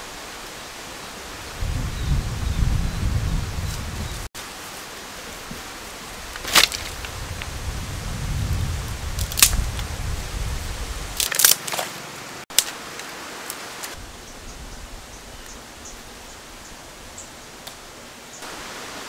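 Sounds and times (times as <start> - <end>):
steady outdoor hiss: 0.0 - 19.0
dry sticks snapping: 6.3 - 7.5, 9.2 - 9.9, 11.2 - 14.0.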